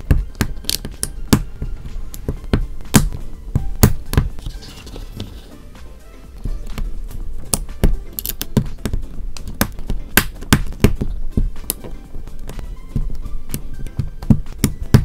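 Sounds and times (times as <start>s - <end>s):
plastic bricks clicking together: 7.5s - 8.6s.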